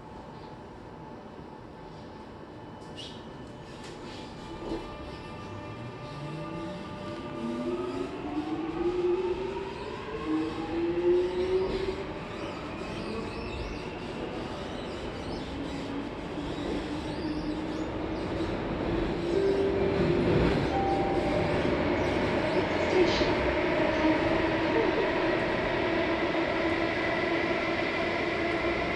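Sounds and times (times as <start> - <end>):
rail rumble: 18.1 - 27.3.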